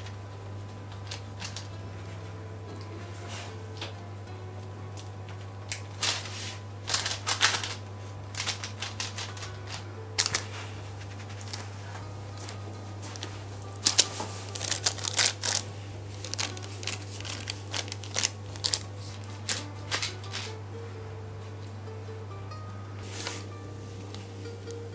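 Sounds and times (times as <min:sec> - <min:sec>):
taps and baking paper crinkles: 0:00.0 - 0:01.8, 0:05.3 - 0:20.6
steady low hum: 0:00.0 - 0:24.9.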